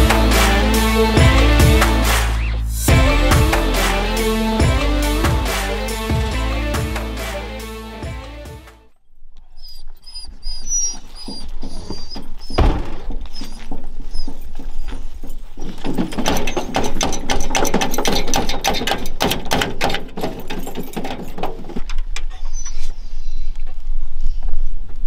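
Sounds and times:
dogs whining: 9.5 - 12.6
dogs barking and yelping: 9.6 - 12.6
thump: 12.6 - 13.2.

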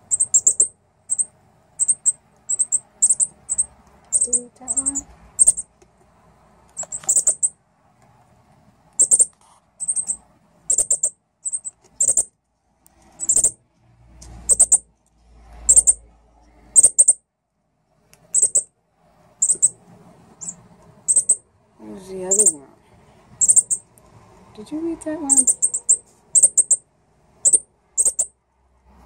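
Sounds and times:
bird high chip calls: 0.0 - 5.8, 6.7 - 7.6, 9.0 - 12.3, 13.2 - 13.6, 14.5 - 14.8, 15.7 - 16.0, 16.8 - 17.2, 18.3 - 18.7, 19.4 - 19.8, 20.4 - 21.4, 22.3 - 22.6, 23.4 - 23.9, 25.3 - 28.4.

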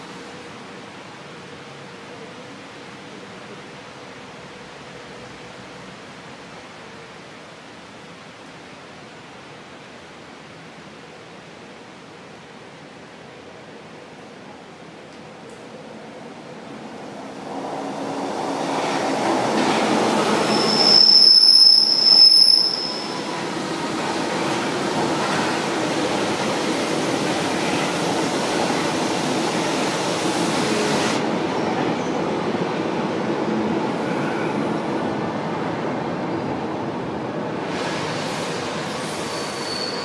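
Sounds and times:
train wheels on rails: 15.1 - 40.0
high steady squeal: 20.2 - 23.7, 38.4 - 40.0.

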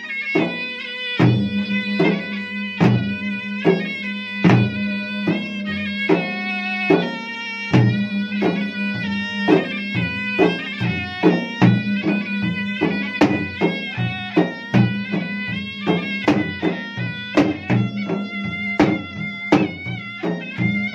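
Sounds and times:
wind pipe playing melody: 0.0 - 20.9
barrel drums beaten in quick rhythm: 6.1 - 20.9.

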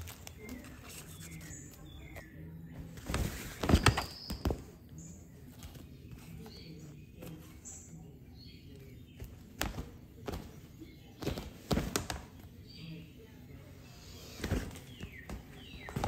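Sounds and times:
cat rustling in fabric tunnel: 2.8 - 4.2.

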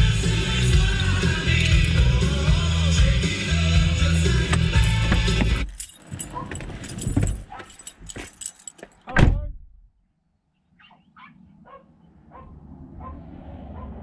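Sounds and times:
dog making faint high calls: 10.8 - 14.0.

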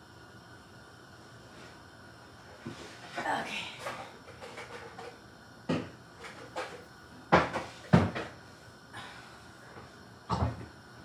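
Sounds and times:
items knocking and thudding: 5.7 - 8.4, 10.3 - 10.7.

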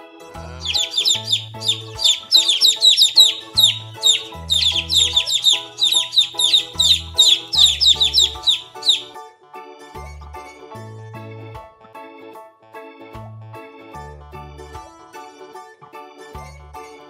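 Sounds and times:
background music: 0.0 - 17.0
baby chicks peeping: 0.4 - 9.2.

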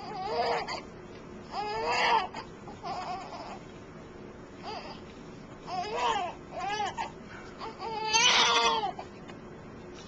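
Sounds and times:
newborn baby crying: 0.0 - 0.9, 1.5 - 3.6, 4.6 - 5.0, 5.6 - 9.1.

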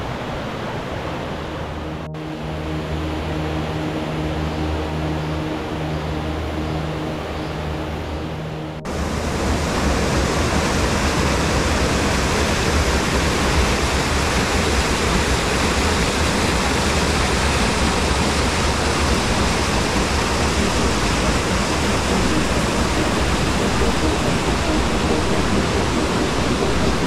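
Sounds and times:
stream water pouring down cascade: 8.9 - 27.0.

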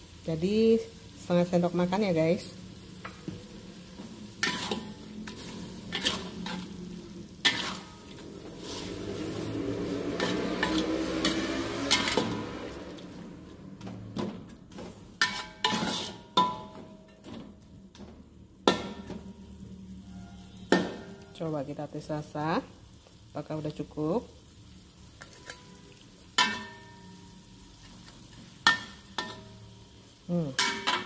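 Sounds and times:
food sizzling: 0.0 - 31.0
metal spatula scraping a wok: 4.2 - 13.2, 14.7 - 17.2, 27.8 - 29.8.

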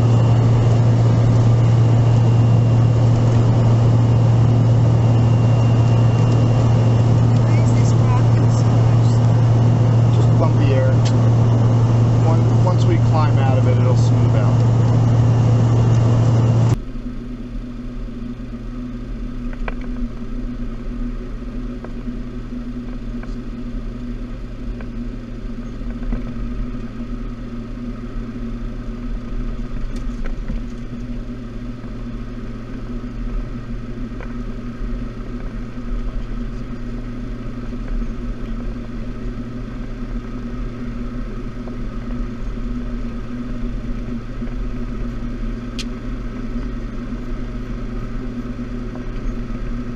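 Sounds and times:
cabin recording: 0.0 - 16.8
jet cockpit hum: 0.0 - 49.9.

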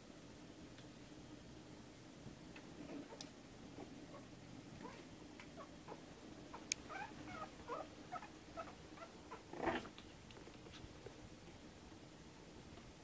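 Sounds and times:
puppy crying: 5.6 - 9.5
puppies squeaking and whimpering: 5.9 - 9.5.

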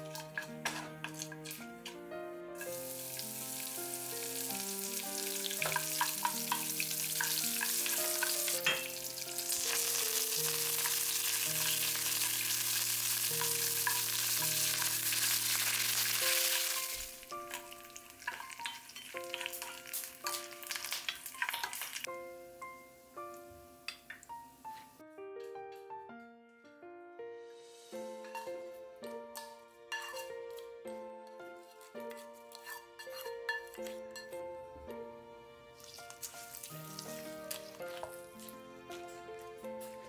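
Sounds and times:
wooden spatula tapping and scraping: 0.0 - 2.0, 28.2 - 34.4
hot oil sizzling in pan: 2.6 - 22.1, 27.7 - 28.6, 29.4 - 30.3, 35.8 - 38.5.

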